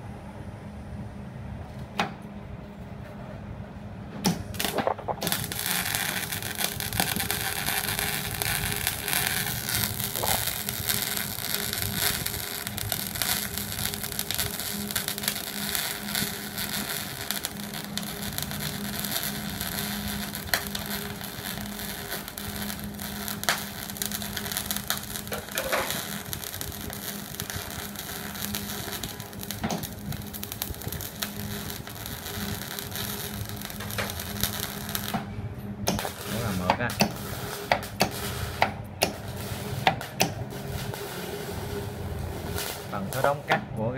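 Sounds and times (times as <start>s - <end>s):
steady low hum: 0.0s - 43.9s
welding arc crackling: 4.3s - 43.9s.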